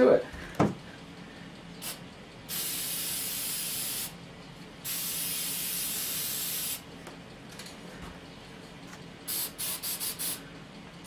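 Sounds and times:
aerosol can spraying: 1.8 - 4.1, 4.9 - 6.8, 9.3 - 10.4.

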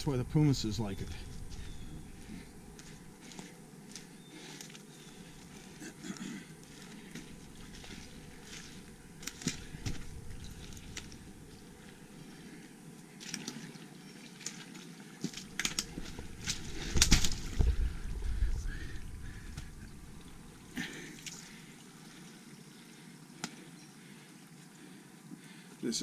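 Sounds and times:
footsteps crunching on leaf litter: 6.7 - 11.3.

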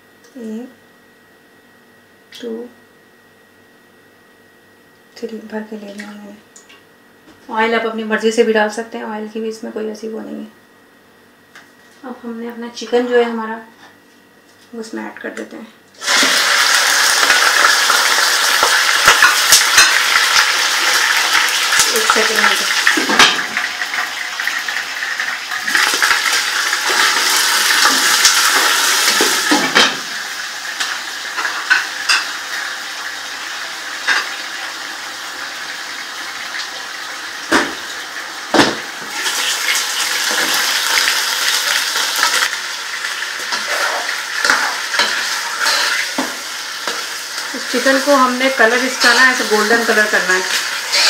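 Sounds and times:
chicken sizzling in frying pan: 16.0 - 51.0
spatula scraping and knocking pan: 43.5 - 47.1.

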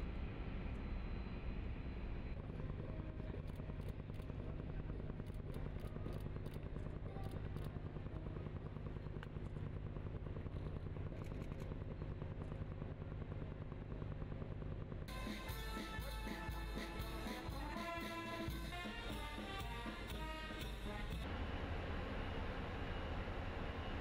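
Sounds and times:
ship machinery humming: 1.5 - 24.0
faint clicks: 10.6 - 11.8.

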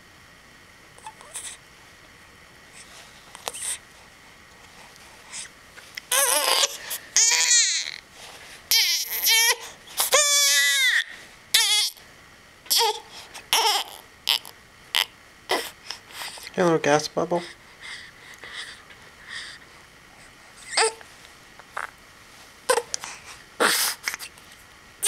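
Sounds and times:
baby squeaks: 6.1 - 7.9
baby crying: 6.1 - 8.0, 8.7 - 12.0, 12.7 - 15.7, 20.7 - 21.0, 22.7 - 23.0.

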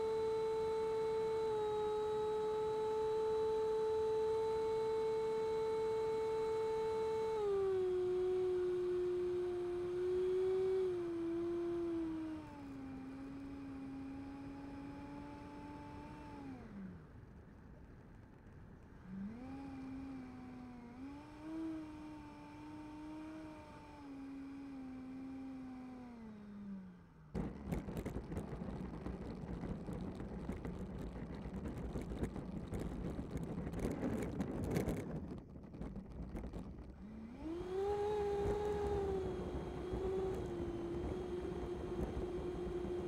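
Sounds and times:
electric ducted fan whining: 0.0 - 43.0
small wheels rolling on asphalt: 27.4 - 43.0.

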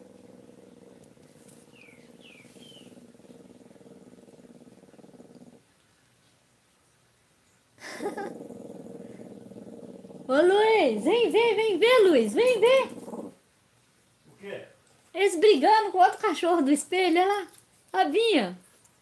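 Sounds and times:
dog whining: 0.0 - 5.4
small dog growling: 0.0 - 5.7, 7.8 - 11.3, 12.4 - 13.4.

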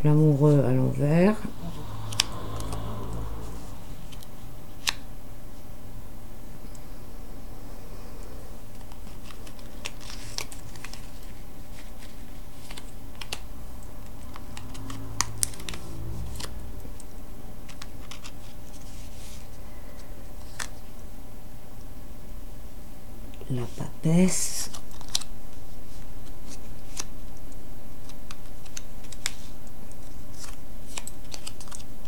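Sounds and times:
steady low hum: 0.0 - 9.4, 11.1 - 24.3.

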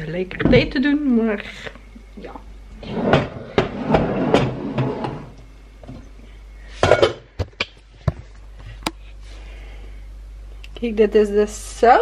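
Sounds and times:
kitchenware clattering: 6.8 - 7.4.

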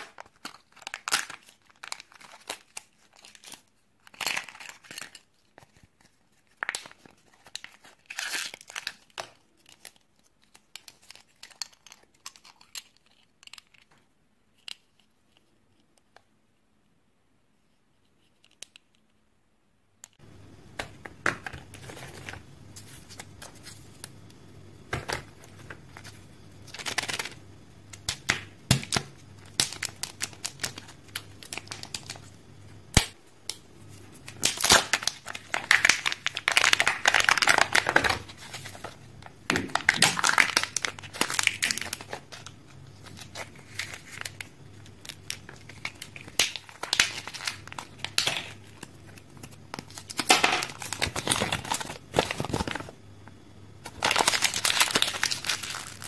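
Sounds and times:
wrappers crinkling and tearing: 0.0 - 13.8, 28.9 - 32.3, 34.1 - 39.0, 39.7 - 52.9, 53.8 - 56.0.

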